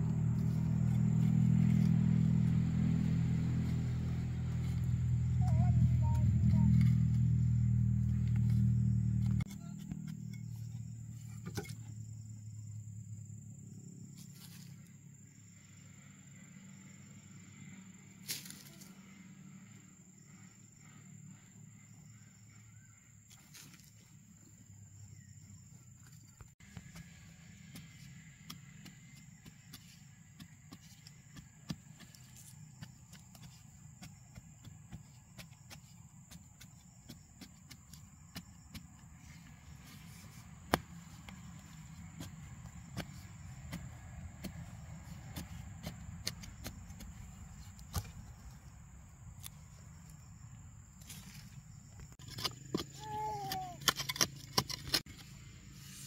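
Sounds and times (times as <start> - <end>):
soil being dug and scraped: 0.0 - 12.2, 14.1 - 15.0, 18.2 - 19.2, 23.3 - 24.4, 26.0 - 56.0
bamboo stick jabbing earth: 26.6 - 48.6.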